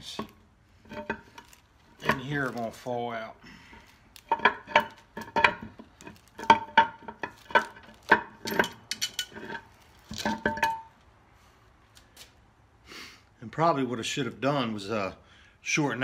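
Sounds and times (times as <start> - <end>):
metal gear clinking: 4.2 - 10.8.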